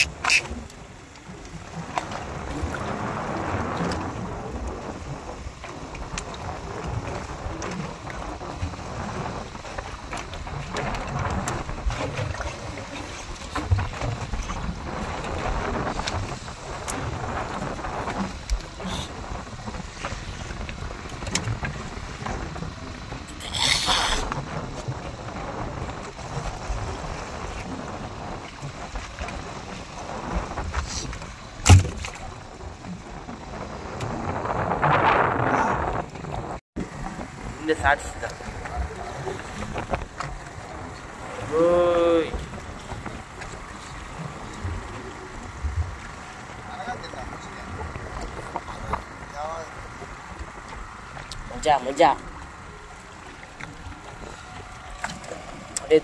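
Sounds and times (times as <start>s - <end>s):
wind and sea rushing: 0.0s - 56.0s
loud thump on boat: 31.6s - 32.3s.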